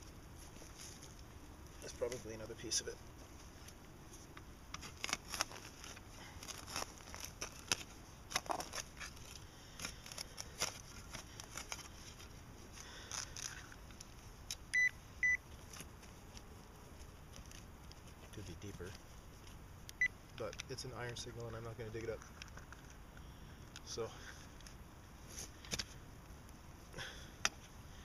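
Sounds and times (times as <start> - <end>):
metal detector beeps: 14.7 - 15.4.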